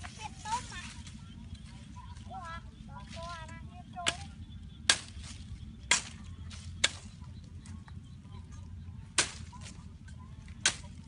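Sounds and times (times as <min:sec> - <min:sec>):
stick whipping into vegetation: 0:04.9 - 0:07.1, 0:09.2 - 0:09.8, 0:10.6 - 0:11.0.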